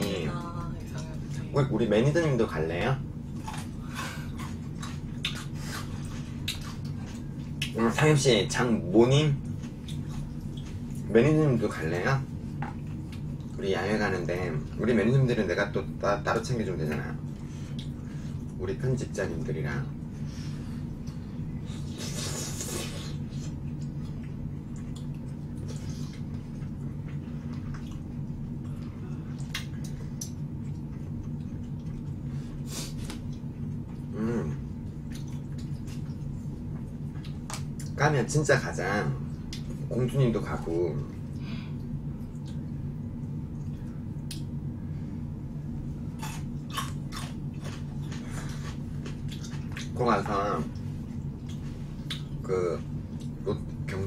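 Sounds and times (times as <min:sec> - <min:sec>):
low hum: 0:00.0 - 0:54.0
wet chewing sounds: 0:03.2 - 0:08.5, 0:09.1 - 0:15.0, 0:19.9 - 0:38.4, 0:39.2 - 0:44.6, 0:45.6 - 0:54.0
wet clicks and smacks: 0:06.4 - 0:07.8, 0:29.4 - 0:32.2, 0:34.8 - 0:38.0, 0:39.3 - 0:39.8, 0:41.2 - 0:44.6.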